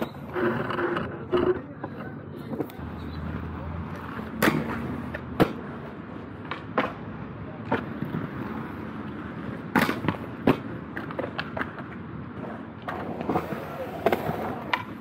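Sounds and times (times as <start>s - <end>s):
skate wheels rolling on concrete: 0.0s - 15.0s
inline skates landing on concrete: 3.9s - 15.0s.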